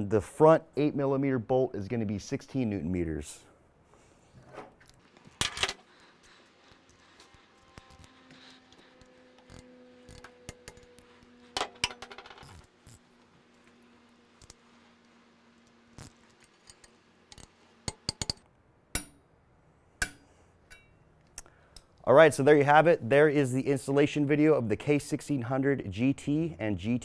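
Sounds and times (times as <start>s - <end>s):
metal tools clicking and clinking: 16.0s - 18.4s.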